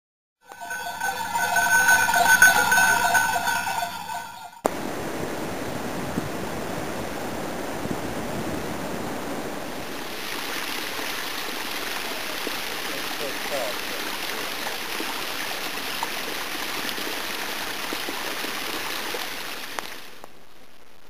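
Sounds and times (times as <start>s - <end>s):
bell-like ringing tones: 0.4s - 4.6s
waterfall splashing down rocks: 4.7s - 20.4s.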